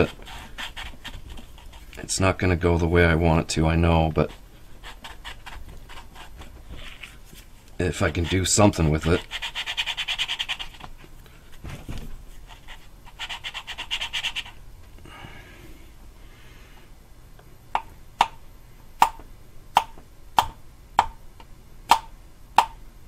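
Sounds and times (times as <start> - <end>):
gritty valve lapping rasp: 7.8 - 10.3.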